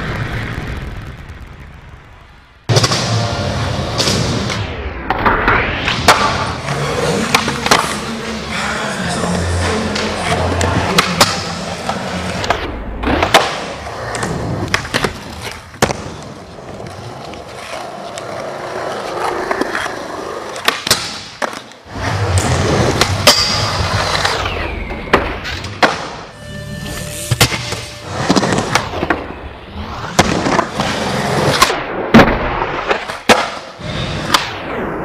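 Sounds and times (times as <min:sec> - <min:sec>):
skateboard wheels rolling on concrete: 0:00.0 - 0:26.3, 0:27.4 - 0:35.0
skateboard popping and landing clacks: 0:12.4 - 0:23.3, 0:30.1 - 0:34.5
skateboard scraping on a rail: 0:21.8 - 0:24.7, 0:25.4 - 0:31.7.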